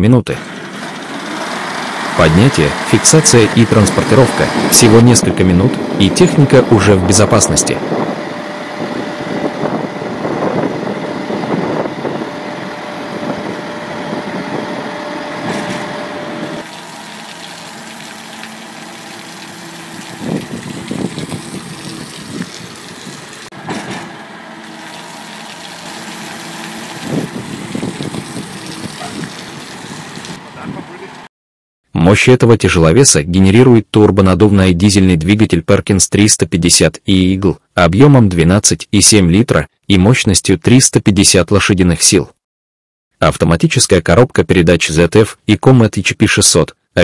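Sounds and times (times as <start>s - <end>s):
truck engine whining under load: 0.4s - 31.3s.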